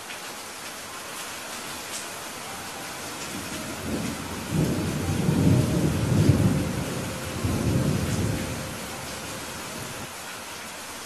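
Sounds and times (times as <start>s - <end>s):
steady rain: 0.0s - 11.0s
thunder rumbling: 2.5s - 10.1s.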